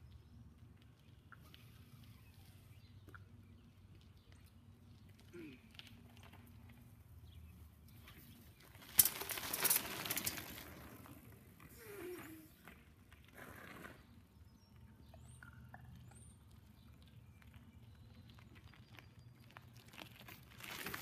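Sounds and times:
bicycle tyres on gravel: 4.1s - 14.4s, 16.6s - 21.0s.

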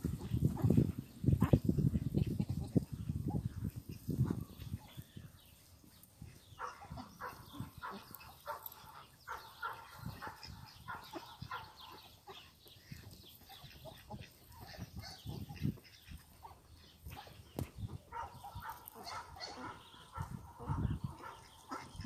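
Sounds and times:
ducks quacking: 6.6s - 17.4s, 18.1s - 22.0s.

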